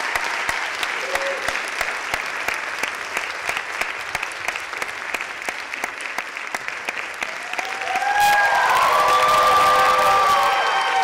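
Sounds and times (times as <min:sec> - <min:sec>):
audience applauding: 0:00.0 - 0:11.0
audience cheers and whoops: 0:07.3 - 0:11.0.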